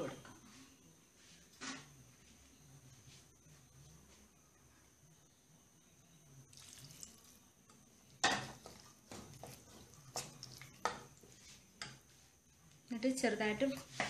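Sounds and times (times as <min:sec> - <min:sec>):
spoon scraping in pan: 0:08.2 - 0:12.3.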